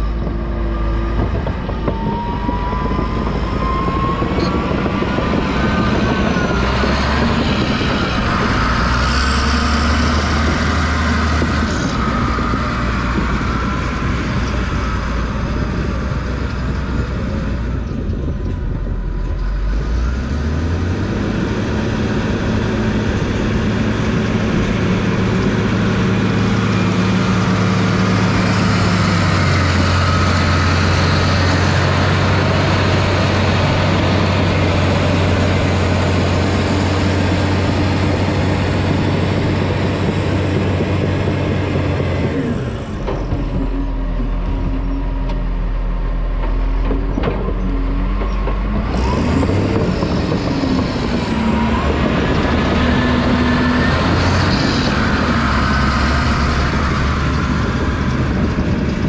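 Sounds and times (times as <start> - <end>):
bulldozer diesel engine under load: 0.0 - 59.0.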